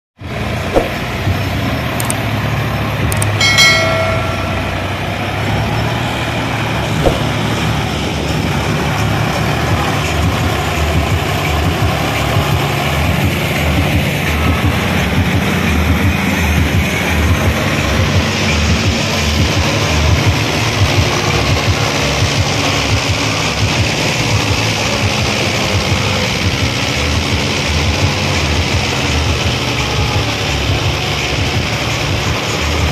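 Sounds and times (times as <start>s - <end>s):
tractor diesel engine under load: 0.2s - 32.9s
high-pitched tone: 3.1s - 6.0s
short knocks: 7.0s - 7.5s.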